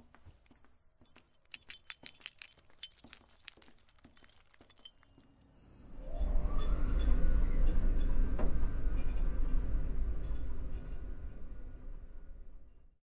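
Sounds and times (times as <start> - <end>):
metallic jingling and clinking: 1.0 - 5.5.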